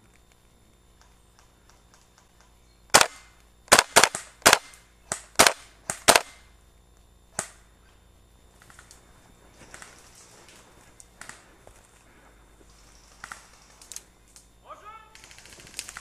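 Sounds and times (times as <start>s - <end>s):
airsoft gun shots: 2.9s - 6.5s.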